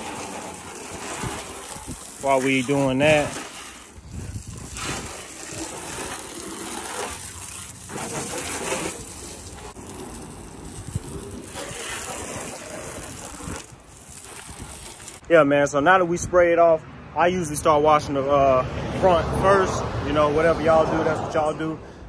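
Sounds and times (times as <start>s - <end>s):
hose water spattering on car: 0.0s - 15.2s
water jet into plastic bucket: 0.0s - 15.2s.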